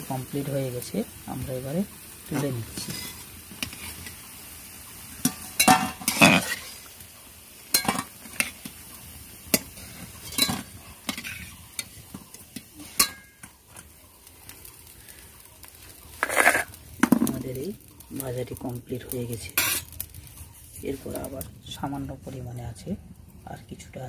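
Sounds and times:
oil sizzling: 0:00.0 - 0:24.0
metal spatula clinking on a pan: 0:05.2 - 0:06.3, 0:07.7 - 0:08.5, 0:09.5 - 0:11.2, 0:12.9 - 0:13.5.

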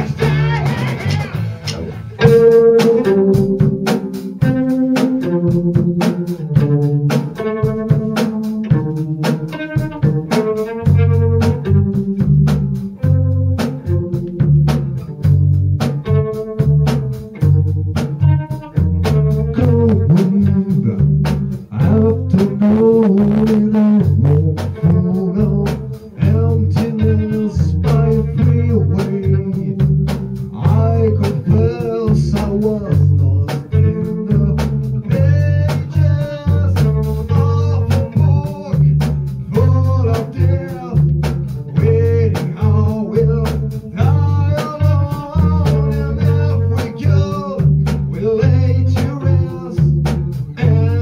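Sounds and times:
drum kit beat: 0:00.0 - 0:51.0
electric bass guitar: 0:00.0 - 0:51.0
man singing into a microphone: 0:19.3 - 0:29.9, 0:30.5 - 0:41.1, 0:41.7 - 0:51.0.

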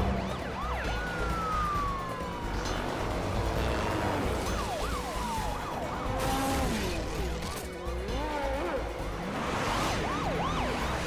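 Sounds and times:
police sirens wailing: 0:00.0 - 0:11.0.

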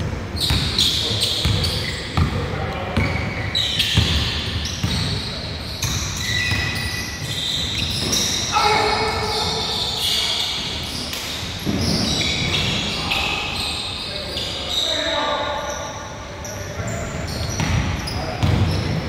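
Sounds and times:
sneakers squeaking on gym floor: 0:00.0 - 0:19.0
basketball bouncing: 0:00.5 - 0:00.8, 0:01.4 - 0:02.4, 0:03.9 - 0:05.1, 0:17.6 - 0:18.7
players calling out: 0:04.9 - 0:11.0.

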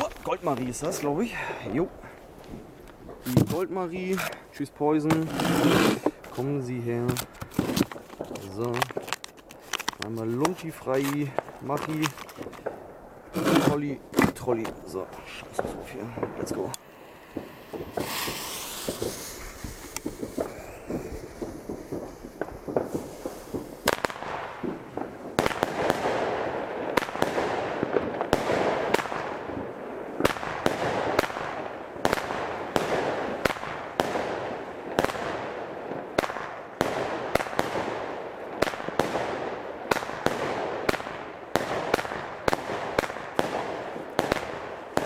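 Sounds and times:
firework crackle: 0:05.2 - 0:14.0, 0:14.8 - 0:45.0
firework launch thumps and bursts: 0:17.3 - 0:26.2.

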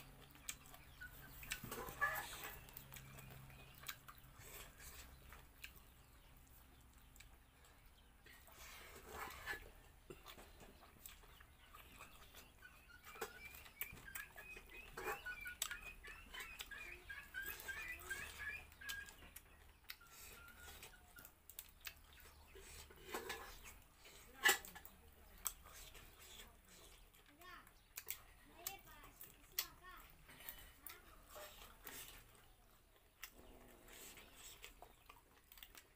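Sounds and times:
wet chewing clicks and smacks: 0:00.0 - 0:08.6, 0:09.9 - 0:35.9
bird chirping rapidly: 0:10.8 - 0:21.2.

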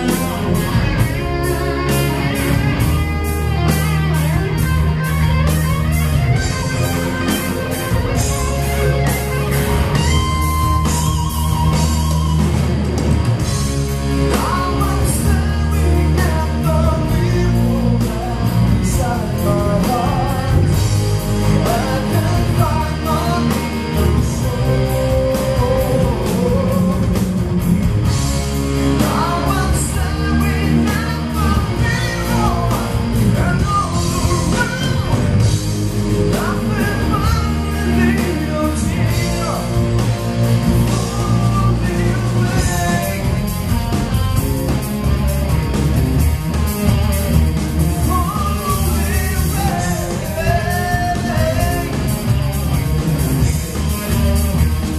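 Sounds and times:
live rock band playing: 0:00.0 - 0:54.9
person singing: 0:14.3 - 0:27.7, 0:48.0 - 0:52.4.

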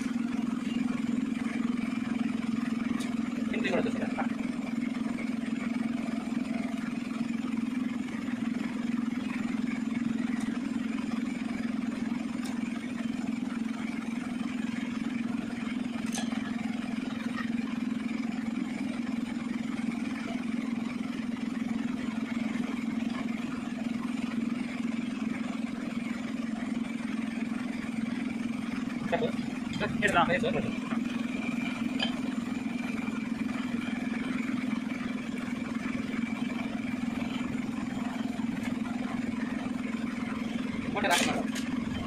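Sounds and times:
low machine hum: 0:00.0 - 0:42.0.

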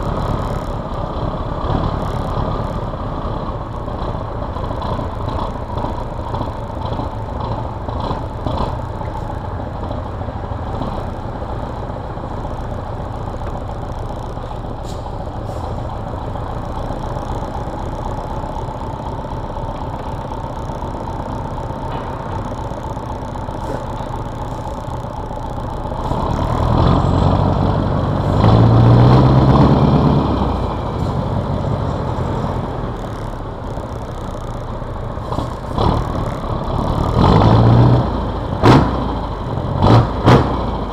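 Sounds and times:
diesel truck engine running: 0:00.0 - 0:40.9.

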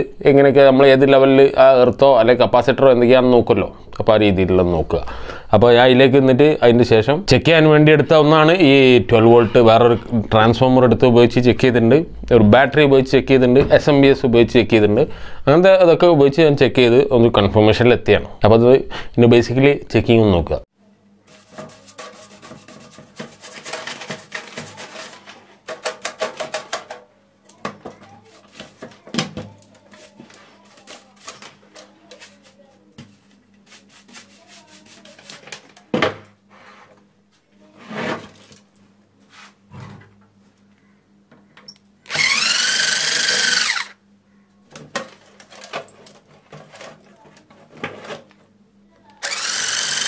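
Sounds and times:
brush scrubbing metal: 0:21.3 - 0:25.9, 0:28.1 - 0:29.0, 0:29.6 - 0:35.6
handling clicks and scrapes: 0:21.3 - 0:32.8
power tool motor whining: 0:42.1 - 0:44.0, 0:49.2 - 0:50.0.

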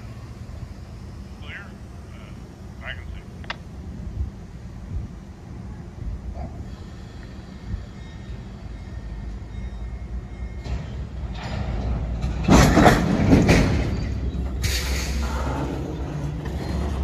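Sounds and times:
train low rumble: 0:00.0 - 0:17.0
train couplers clanking: 0:06.3 - 0:17.0
high-pitched train screech: 0:13.8 - 0:17.0.

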